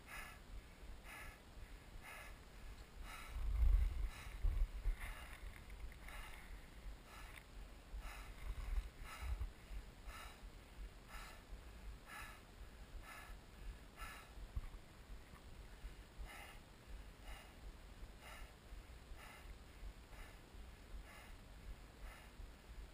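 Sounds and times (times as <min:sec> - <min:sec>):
person breathing hard: 0:00.0 - 0:22.9
wind rumble on microphone: 0:03.1 - 0:07.0, 0:08.0 - 0:09.9.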